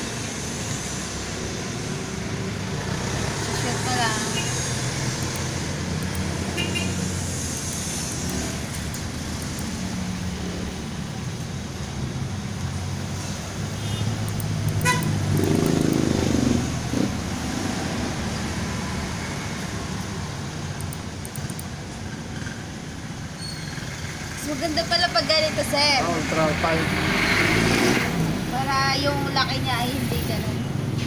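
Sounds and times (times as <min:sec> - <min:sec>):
traffic hum: 0:00.0 - 0:31.0
vehicle passing or horn: 0:03.6 - 0:05.0, 0:06.4 - 0:07.3, 0:13.6 - 0:17.1
sharp click: 0:07.7 - 0:09.8, 0:20.8 - 0:21.7.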